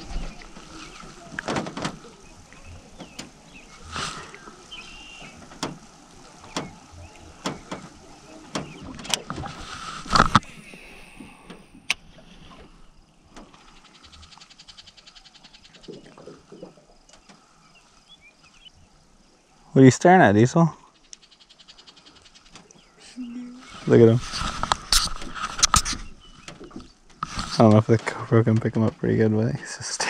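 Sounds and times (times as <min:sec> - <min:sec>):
knocks and thumps in boat: 0:00.0 - 0:10.5, 0:15.7 - 0:17.5.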